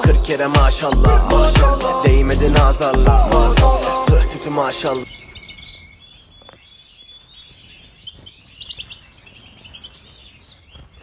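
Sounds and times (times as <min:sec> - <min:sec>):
finches twittering and chirping: 0:03.7 - 0:11.0.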